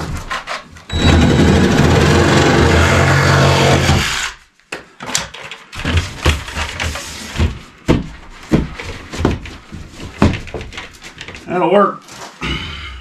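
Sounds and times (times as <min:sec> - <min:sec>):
cordless drill running: 0:01.0 - 0:04.4.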